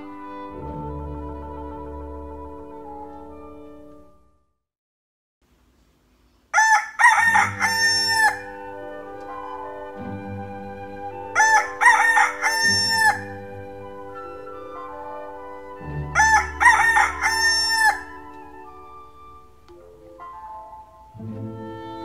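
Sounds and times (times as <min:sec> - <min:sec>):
rooster crowing: 0:06.6 - 0:08.6, 0:11.4 - 0:13.3, 0:16.2 - 0:18.2.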